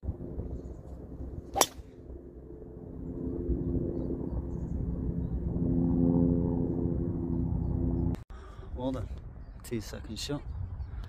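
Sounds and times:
motor engine humming: 0.0 - 8.2
golf club striking ball: 1.5 - 1.9.

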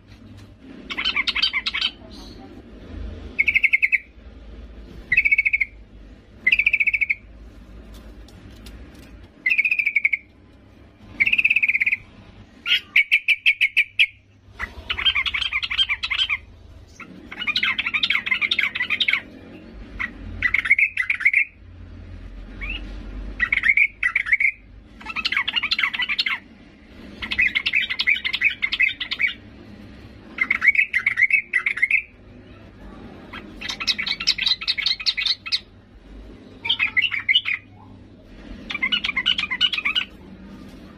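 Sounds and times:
bird chattering calls: 0.9 - 2.5, 6.4 - 7.3, 11.2 - 19.3, 27.2 - 29.4, 33.3 - 35.7.

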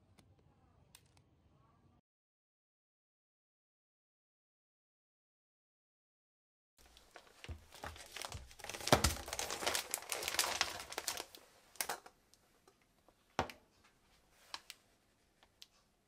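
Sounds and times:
plastic packets crinkling: 6.8 - 12.2.

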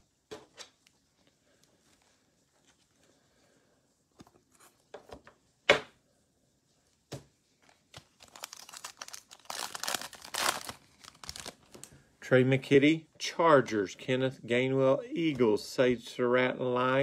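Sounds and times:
foil wrapper crinkling and tearing: 7.6 - 11.9.

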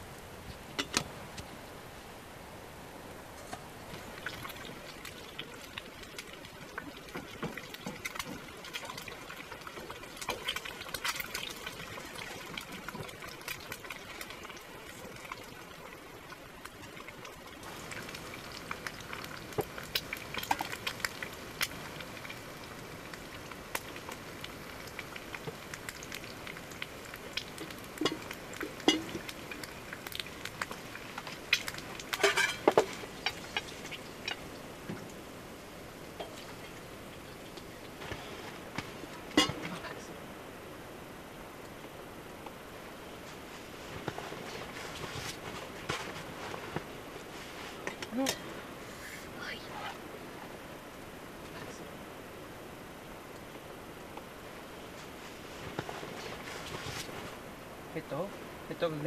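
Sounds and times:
food frying hiss: 3.4 - 59.0
wooden spoon stirring in pan: 3.9 - 35.1, 43.2 - 48.4, 55.0 - 57.4.

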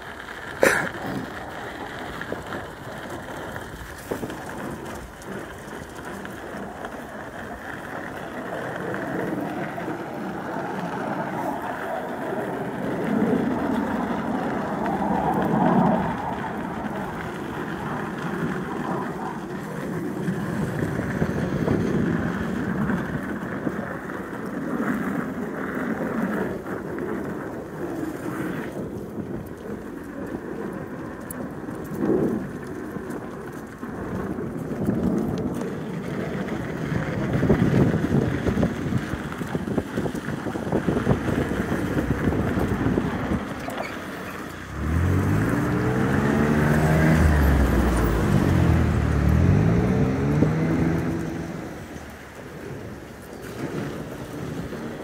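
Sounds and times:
tyre rolling on gravel: 0.0 - 55.0
tyre buzzing over wooden deck: 36.4 - 55.0.

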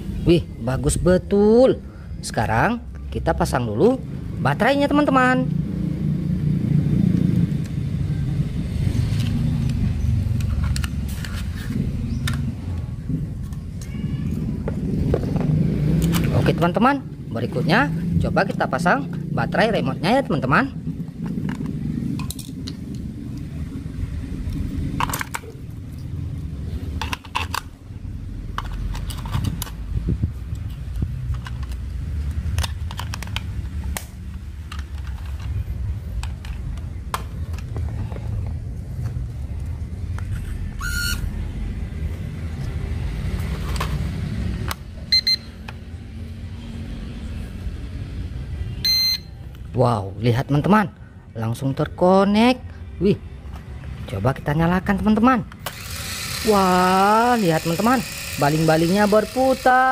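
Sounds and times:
low rumble: 20.4 - 30.6
plastic clicks and rattles: 27.0 - 27.7, 28.5 - 29.9, 30.6 - 35.6, 36.2 - 38.0
short electronic beeps: 45.1 - 45.6, 48.8 - 49.4.

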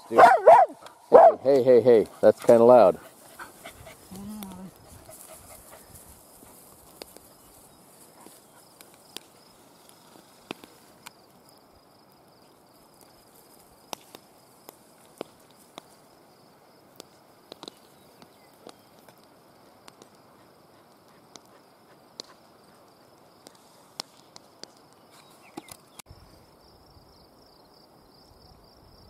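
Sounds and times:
high insect drone: 24.9 - 29.0.

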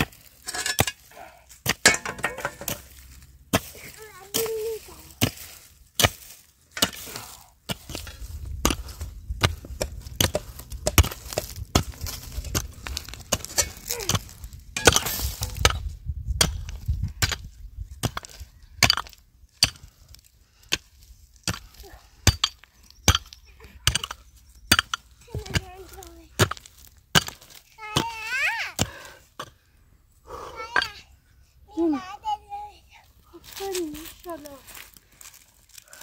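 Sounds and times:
hand tool striking wood: 4.3 - 19.9, 21.4 - 28.2
low rumble: 8.0 - 18.0.

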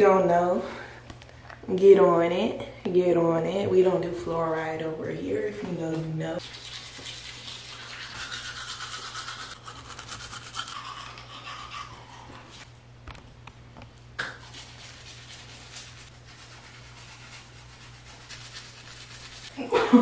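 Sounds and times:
toothbrush scrubbing teeth: 6.4 - 12.7, 14.2 - 19.6.

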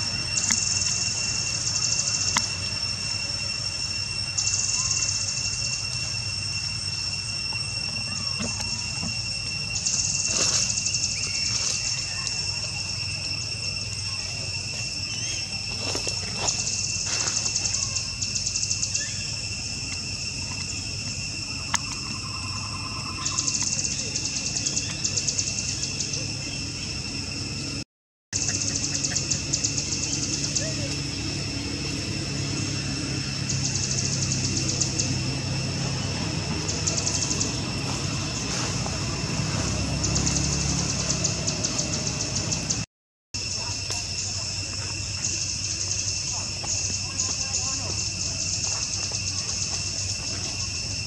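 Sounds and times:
insect pulsing trills: 0.0 - 27.8, 28.4 - 42.8
insects droning: 0.0 - 27.8, 28.4 - 51.0.

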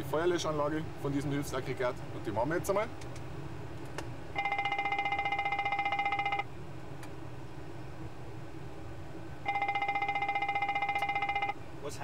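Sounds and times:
fire warning bell ringing rapidly: 4.4 - 6.5, 9.5 - 11.6.

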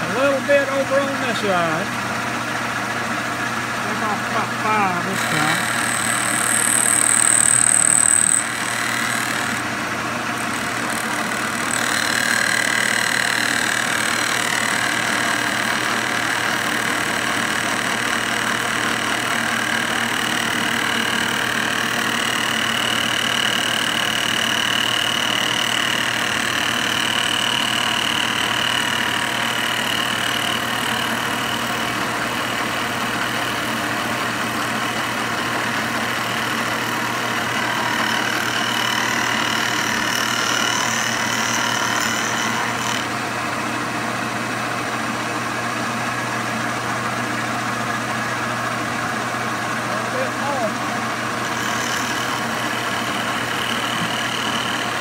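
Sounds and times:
milling machine running: 0.0 - 55.0.

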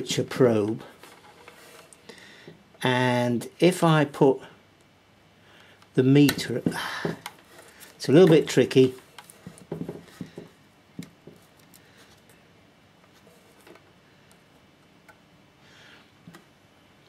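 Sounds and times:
small clicks and rustles: 7.2 - 12.4.

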